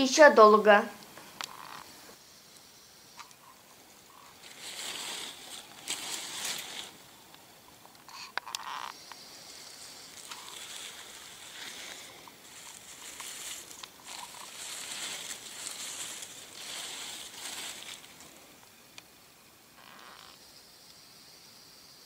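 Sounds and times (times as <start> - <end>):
dry leaves rustling: 4.1 - 7.4, 8.6 - 18.7.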